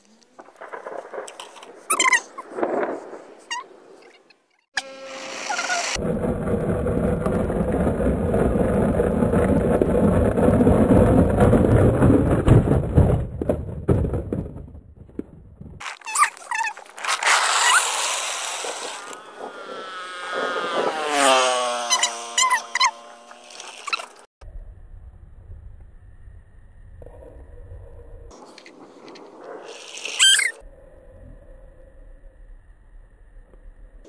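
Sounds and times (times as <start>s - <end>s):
sliding pitched tones: 15.8s - 24.3s
toy truck wheels rolling on asphalt: 15.8s - 24.3s, 28.4s - 30.6s.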